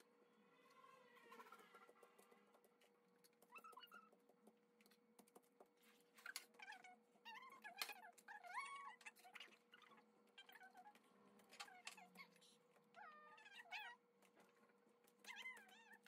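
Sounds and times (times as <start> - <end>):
faint high-pitched voices: 6.4 - 14.0.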